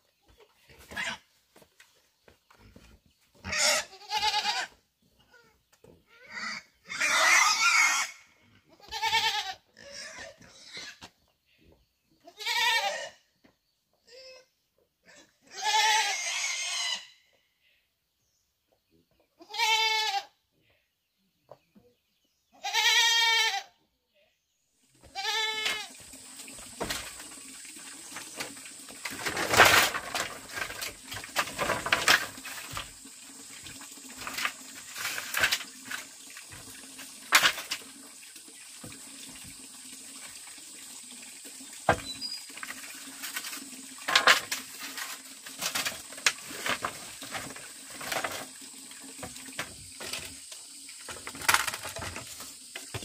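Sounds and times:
goat bleating: 3.5s - 5.4s, 8.7s - 11.0s, 12.2s - 13.2s, 15.4s - 17.0s, 19.4s - 20.3s, 22.6s - 23.7s, 25.1s - 25.9s.

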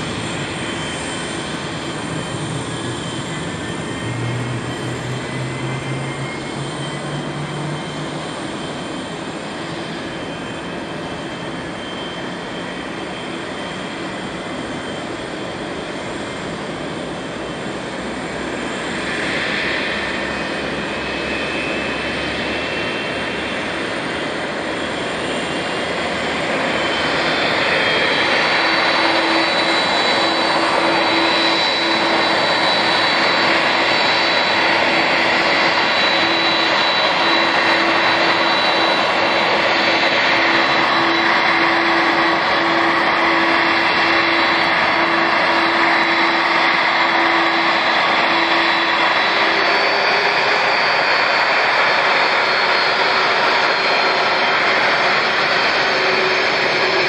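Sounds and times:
jet engines whining: 0.0s - 57.0s.

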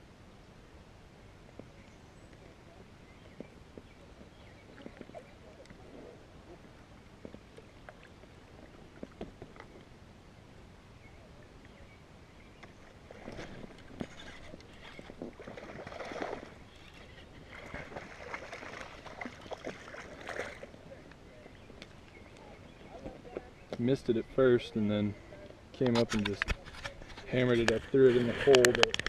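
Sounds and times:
fish splashing in water: 12.6s - 23.2s.

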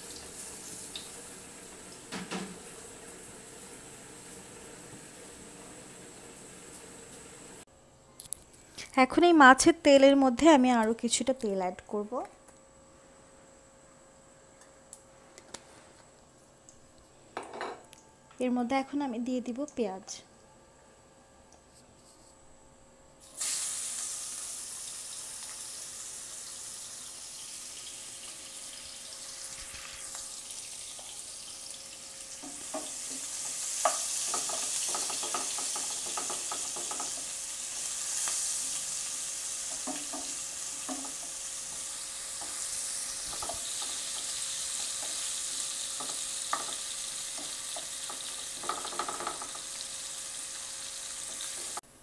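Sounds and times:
onions sizzling in oil: 0.0s - 7.7s, 23.2s - 52.0s.

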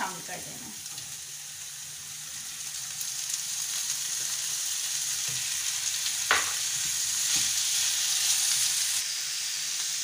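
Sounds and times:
onions and potatoes sizzling in oil: 0.0s - 10.0s
wooden spatula knocking a pan: 6.3s - 6.6s.

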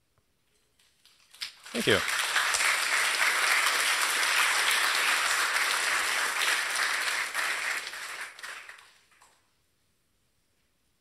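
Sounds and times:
audience applauding: 1.4s - 9.2s.

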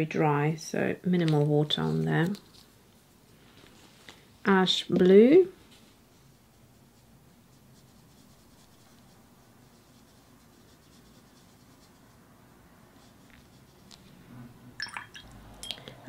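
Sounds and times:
paintbrush scratching on paper: 5.5s - 14.3s.

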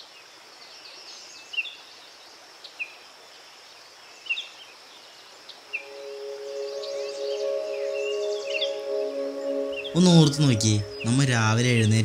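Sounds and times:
birds chirping: 5.8s - 12.0s.

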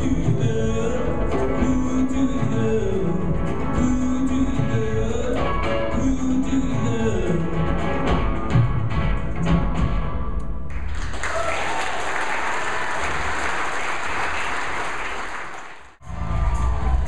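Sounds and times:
rock and roll band playing: 0.0s - 10.4s
audience applauding: 10.7s - 17.0s.

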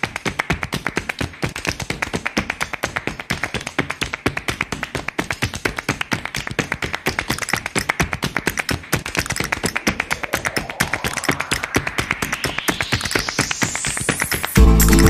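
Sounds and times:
flamenco percussive tapping: 0.0s - 10.1s.

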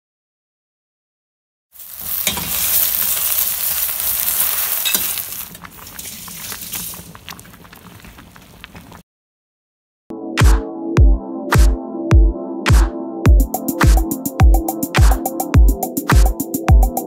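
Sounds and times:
loud cooking sizzle: 1.8s - 7.8s
soup bubbling in a pot: 1.8s - 9.0s.

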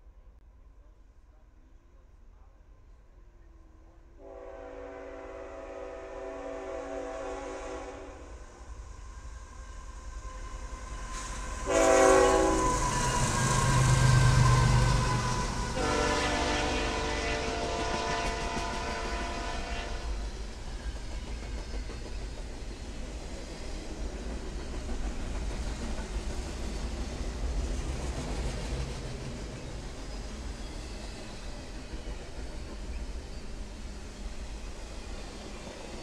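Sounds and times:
train horn blasts: 4.2s - 8.3s, 11.6s - 13.8s, 14.5s - 20.2s.

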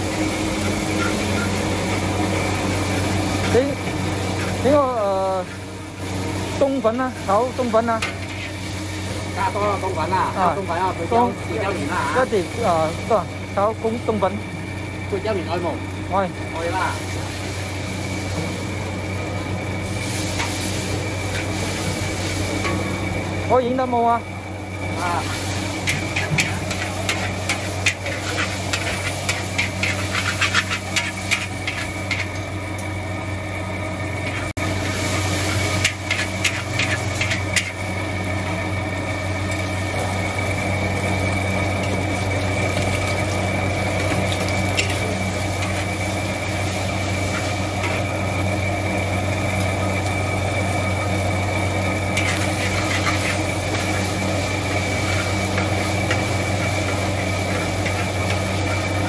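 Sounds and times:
food frying: 0.0s - 59.0s
steady low hum: 0.0s - 59.0s
metal spatula scraping a wok: 8.0s - 8.9s, 25.2s - 32.4s, 35.2s - 37.8s, 44.7s - 48.0s, 52.2s - 59.0s.

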